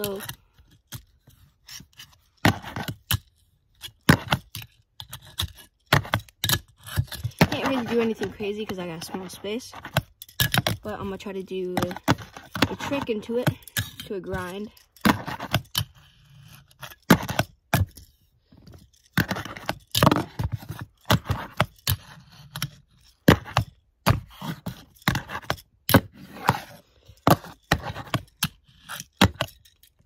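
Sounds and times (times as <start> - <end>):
fingerboard clacking and scraping: 0.0 - 10.9, 11.6 - 30.0.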